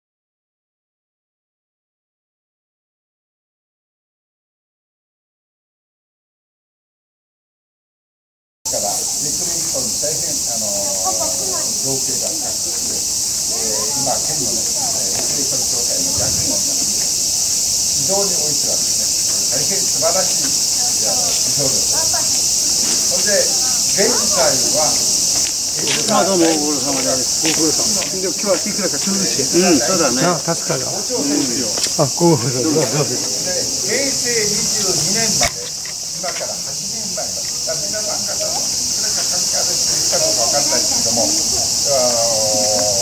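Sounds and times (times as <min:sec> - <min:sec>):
children and adults chattering: 0:08.7 - 0:43.0
insects shrilling: 0:08.7 - 0:43.0.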